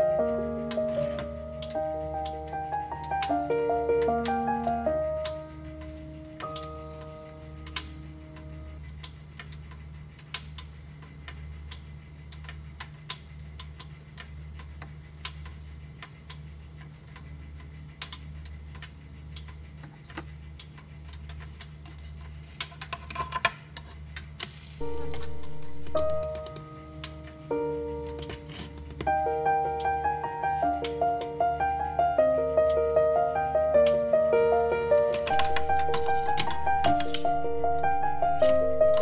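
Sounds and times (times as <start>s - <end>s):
background music: 0.0s - 9.1s, 24.8s - 39.0s
steady low hum: 0.0s - 39.0s.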